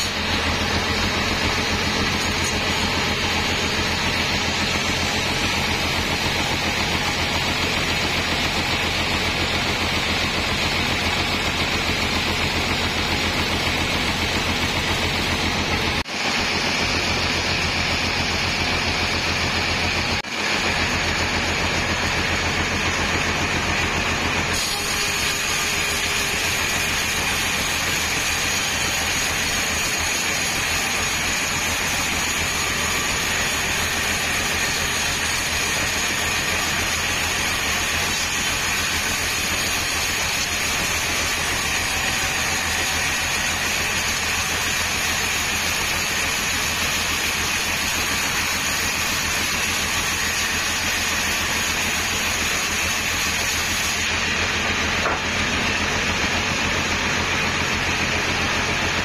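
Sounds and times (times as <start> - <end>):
low motor hum: 0.0 - 26.5
band saw cutting log: 0.0 - 59.0
high whine from saw blade: 0.0 - 59.0.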